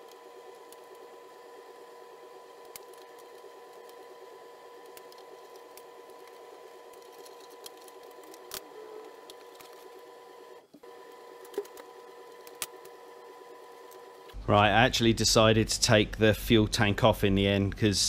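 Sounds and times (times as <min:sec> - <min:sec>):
steady hum: 0:00.0 - 0:18.0.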